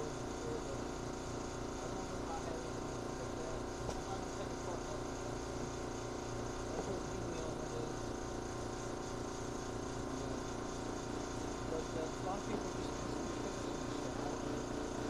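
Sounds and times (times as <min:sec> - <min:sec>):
machine hum: 0:00.0 - 0:15.0.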